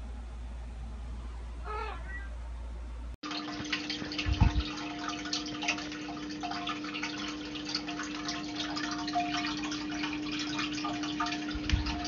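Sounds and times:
steady low hum: 0:00.0 - 0:12.0
water dripping and trickling: 0:03.2 - 0:12.0.

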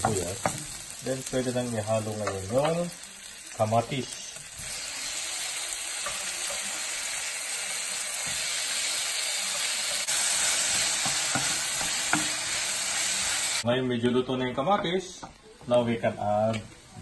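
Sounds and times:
food sizzling in hot oil: 0:00.0 - 0:13.7.

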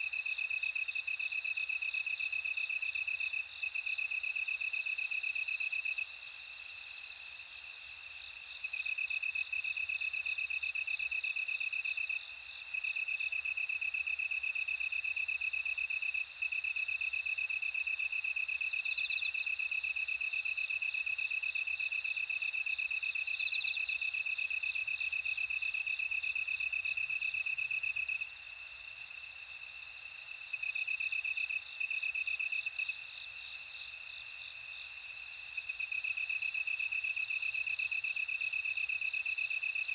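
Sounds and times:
crickets trilling: 0:00.0 - 0:39.9.

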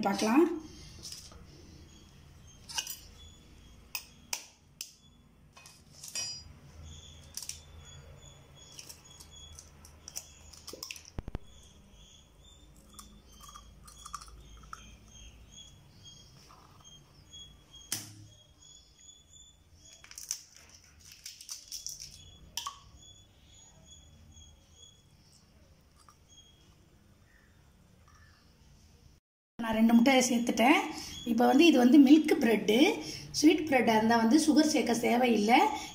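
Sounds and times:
bird chirping: 0:00.2 - 0:05.3, 0:06.2 - 0:20.6, 0:21.5 - 0:28.9, 0:30.1 - 0:35.9
spoon and egg tapping a bowl: 0:22.6 - 0:22.8.

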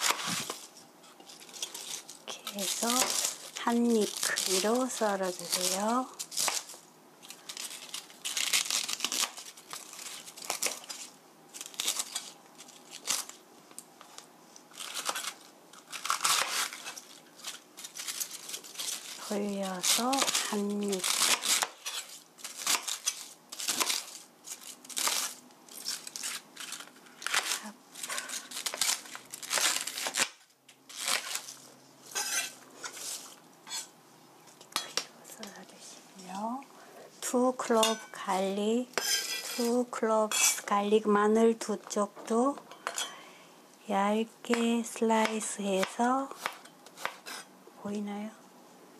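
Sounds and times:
knife slicing cabbage: 0:00.0 - 0:13.4, 0:14.7 - 0:33.9, 0:44.5 - 0:47.5.

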